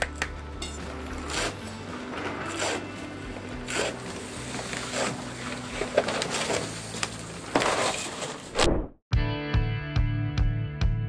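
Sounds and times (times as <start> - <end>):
heavy fabric rustling and ripping: 3.6 - 8.7.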